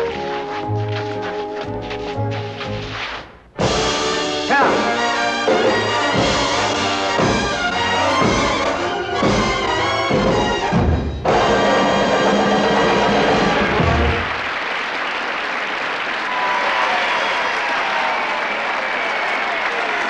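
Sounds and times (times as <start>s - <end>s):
brass-led orchestral music: 3.6s - 14.4s.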